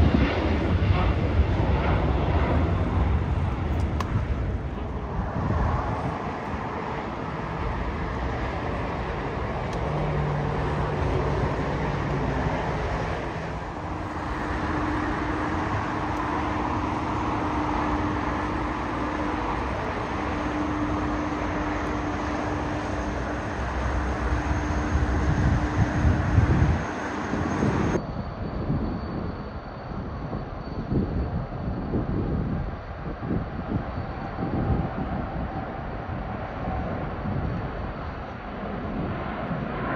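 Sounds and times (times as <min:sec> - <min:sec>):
passing cars: 0:00.0 - 0:28.0
low hum: 0:00.0 - 0:29.6
jet engines: 0:00.0 - 0:39.9.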